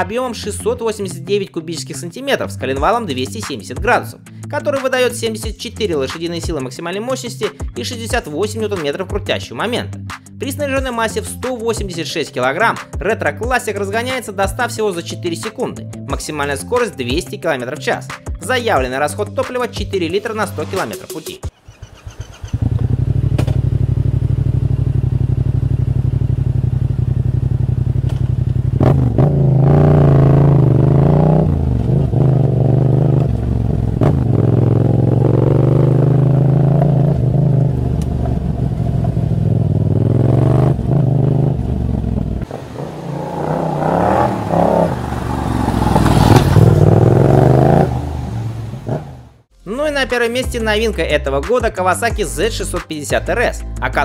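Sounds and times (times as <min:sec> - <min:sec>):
motorcycle engine revving: 0:21.5 - 0:49.5.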